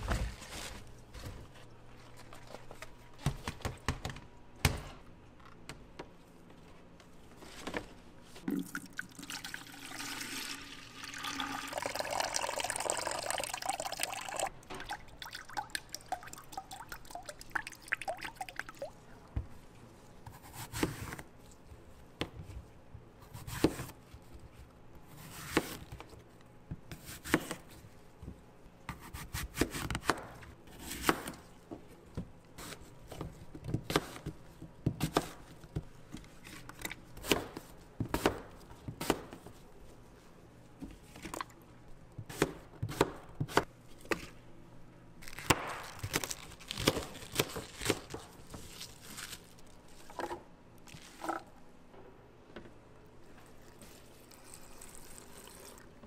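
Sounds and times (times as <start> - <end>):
food handling noises: 0.0 - 4.4, 45.2 - 51.6
knife chopping apple on board: 37.2 - 39.4, 42.3 - 44.2.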